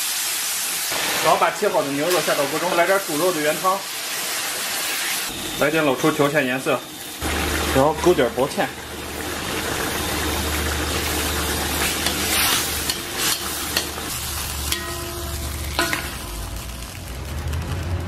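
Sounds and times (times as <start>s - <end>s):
sauce bubbling and sizzling in wok: 0.0s - 18.0s.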